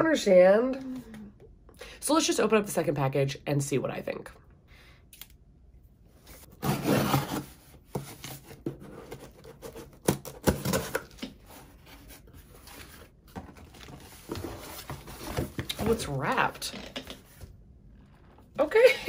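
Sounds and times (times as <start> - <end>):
sharp clicks and snaps: 5.1 - 5.4.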